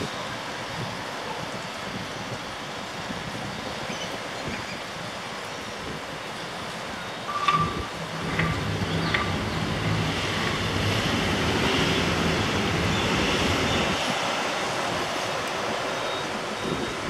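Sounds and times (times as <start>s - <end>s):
rushing outdoor noise: 0.0s - 17.0s
low engine hum: 7.3s - 17.0s.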